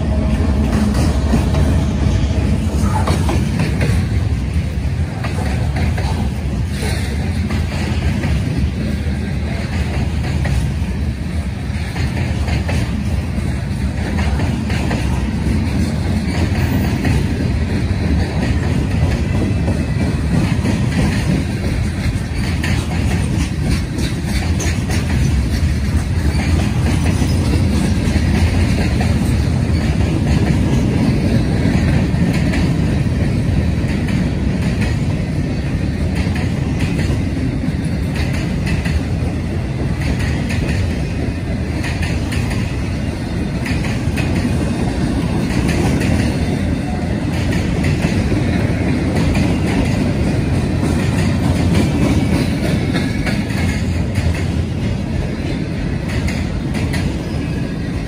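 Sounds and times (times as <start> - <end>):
train wheels rumbling on rail: 0.0 - 58.0
wheels clacking over rail joints: 0.0 - 58.0.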